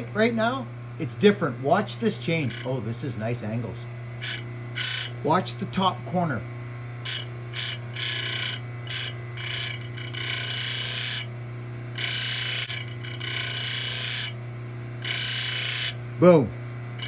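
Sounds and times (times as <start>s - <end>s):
grinder motor humming: 0.0s - 17.0s
grinding wheel on metal tooth: 2.2s - 3.0s, 4.2s - 5.6s, 7.0s - 11.3s, 11.9s - 14.4s, 15.0s - 16.0s.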